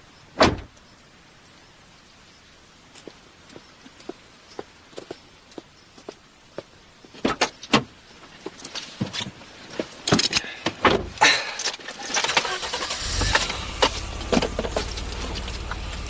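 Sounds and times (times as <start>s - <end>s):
car door clunking shut: 0.4s - 0.7s
car engine starting and idling: 11.7s - 16.0s.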